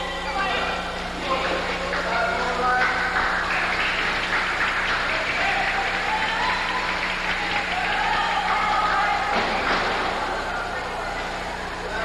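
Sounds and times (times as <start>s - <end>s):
crowd cheering and clapping: 1.2s - 12.0s
people shouting: 5.4s - 11.4s.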